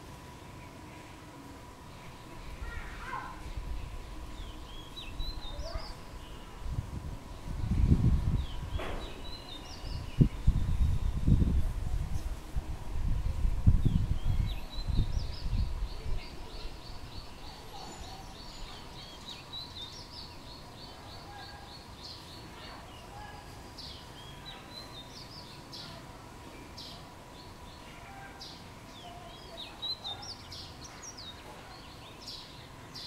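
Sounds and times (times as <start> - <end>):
birds calling with high notes: 2.1 - 6.7, 7.4 - 11.2, 13.9 - 33.0.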